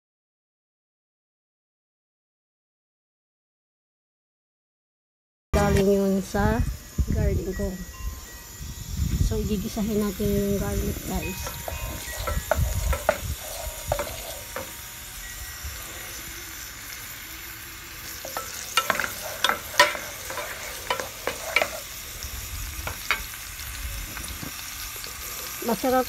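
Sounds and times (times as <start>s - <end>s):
garlic sizzling in hot oil: 5.6s - 26.0s
spatula knocking on pot: 11.4s - 14.8s, 18.3s - 21.8s.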